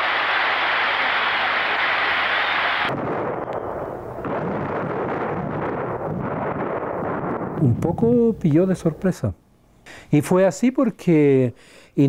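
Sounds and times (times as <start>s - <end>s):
gunfire and explosions: 2.9s - 8.2s.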